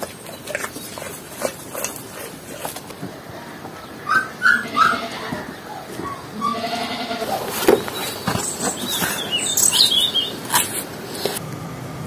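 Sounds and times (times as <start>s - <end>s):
birds chirping: 0.0s - 11.4s
goat bleating: 4.1s - 7.7s.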